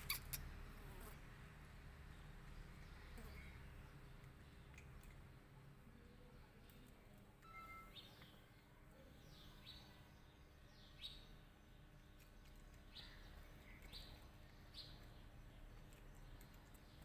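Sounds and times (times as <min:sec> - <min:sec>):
faint bird chirps: 0:00.0 - 0:00.6, 0:05.9 - 0:17.0
quiet outdoor background noise: 0:00.0 - 0:17.0.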